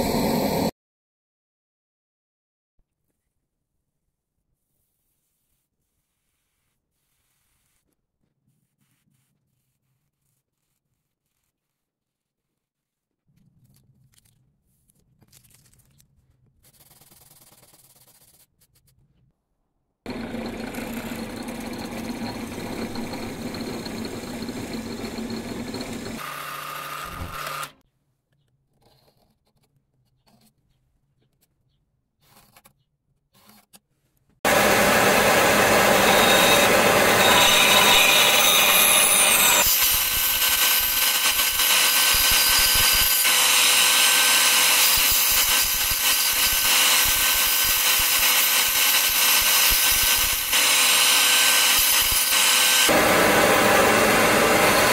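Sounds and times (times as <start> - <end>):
power saw cutting wood: 20.1 - 27.8, 34.5 - 54.9.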